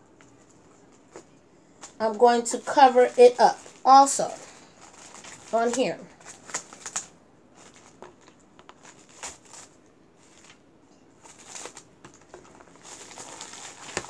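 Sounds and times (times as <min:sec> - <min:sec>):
cling wrap crinkling: 0:00.1 - 0:14.0.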